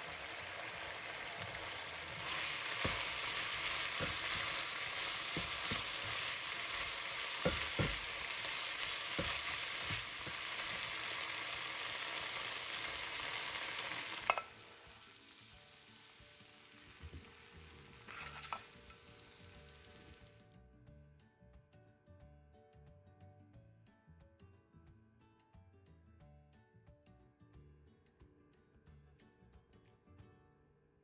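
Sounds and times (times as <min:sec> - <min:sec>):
food sizzling in frying pan: 0:00.0 - 0:20.4
spatula scraping pan: 0:02.1 - 0:10.9, 0:18.0 - 0:19.0.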